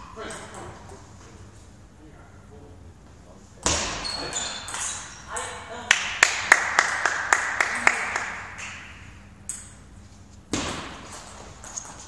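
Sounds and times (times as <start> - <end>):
table tennis ball bouncing: 3.7 - 6.1.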